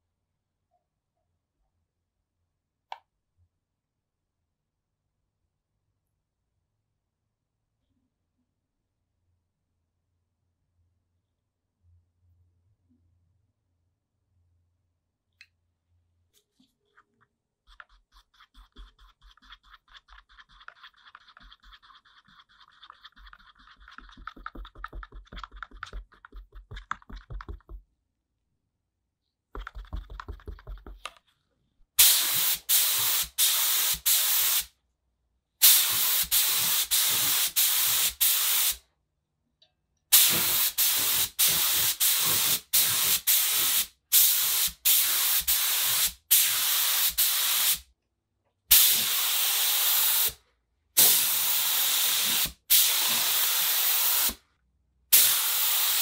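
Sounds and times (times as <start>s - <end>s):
stick scraping in paper cup: 17.0s - 27.8s
spray gun hissing: 32.0s - 34.7s, 35.6s - 38.8s, 40.2s - 47.8s, 48.7s - 50.4s, 51.0s - 54.4s, 55.1s - 56.0s.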